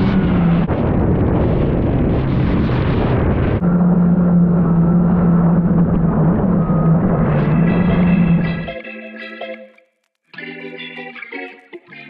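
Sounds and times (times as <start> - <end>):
wind buffeting: 0.0 - 8.7
jet ski engine running: 3.3 - 8.7.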